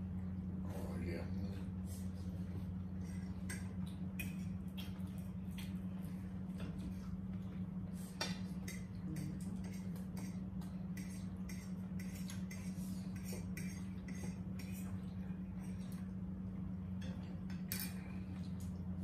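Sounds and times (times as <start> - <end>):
steady low hum: 0.0 - 19.0
forks clinking on plates: 17.0 - 18.1.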